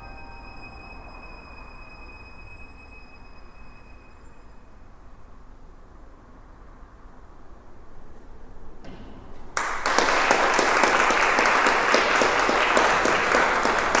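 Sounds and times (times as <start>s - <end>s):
audience applause: 9.6s - 14.0s.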